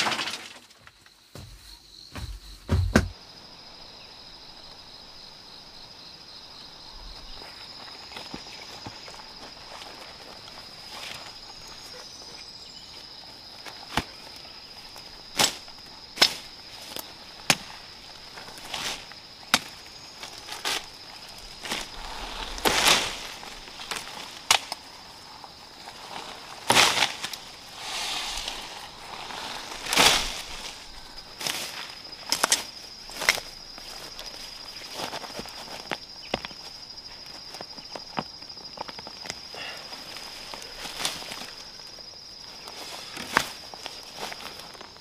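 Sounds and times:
sharp knocks and cracks: 0:00.0 - 0:03.2, 0:19.5 - 0:19.8
high insect drone: 0:00.8 - 0:45.0
rustling swishes in vegetation: 0:20.2 - 0:35.9.

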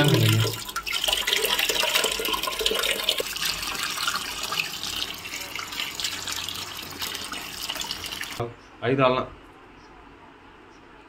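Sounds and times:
tap water running into sink: 0:00.0 - 0:08.4.

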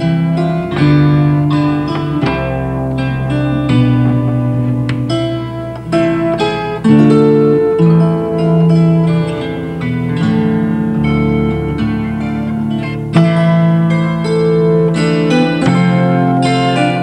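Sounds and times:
kantele plucked melody: 0:00.0 - 0:17.0.

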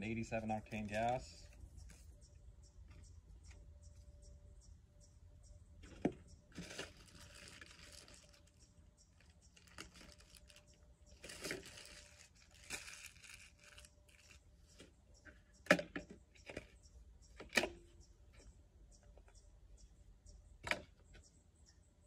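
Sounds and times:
packaging crinkling and tearing: 0:06.5 - 0:08.6, 0:09.2 - 0:14.4.

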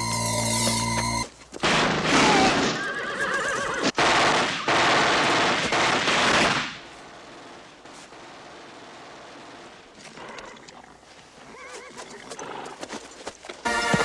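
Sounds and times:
horse whinnying: 0:02.2 - 0:04.0, 0:11.4 - 0:12.8.

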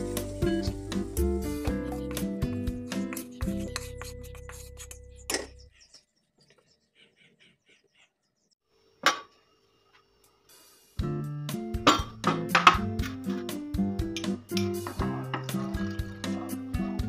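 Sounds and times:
background music: 0:00.0 - 0:05.3, 0:11.0 - 0:17.0.

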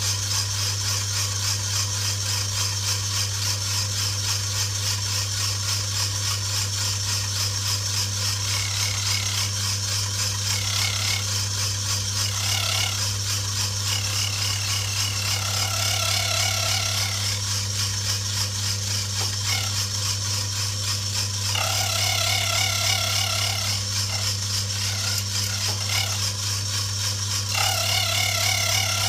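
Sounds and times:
electric motor humming: 0:00.0 - 0:29.0
cutter whining into metal: 0:07.2 - 0:29.0.

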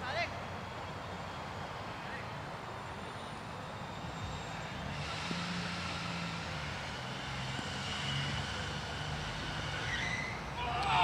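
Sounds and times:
engine drone: 0:00.0 - 0:11.0.

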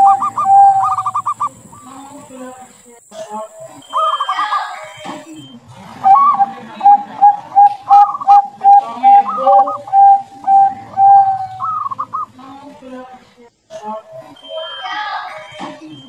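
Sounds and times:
dove cooing: 0:00.0 - 0:02.2, 0:03.7 - 0:04.5, 0:06.0 - 0:12.3.

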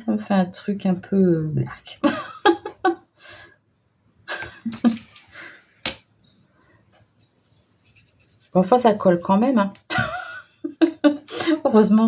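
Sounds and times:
person breathing: 0:03.2 - 0:03.6, 0:05.2 - 0:05.8.

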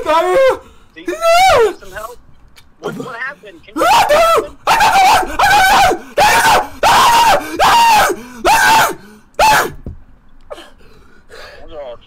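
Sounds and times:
man screaming in pain: 0:00.0 - 0:01.8, 0:03.8 - 0:09.8.

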